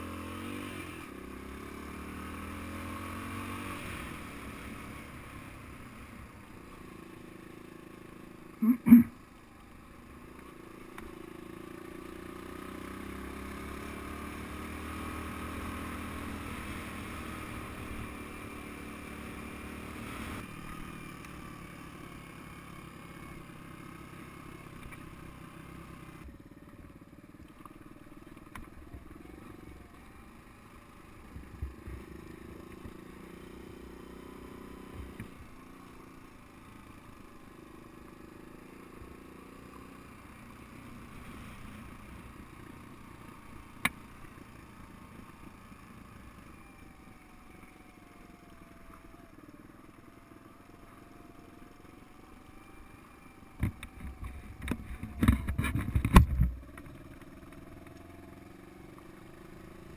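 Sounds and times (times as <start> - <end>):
motorcycle engine running: 0.0 - 59.9
sharp knocks from rough track: 53.6 - 57.0.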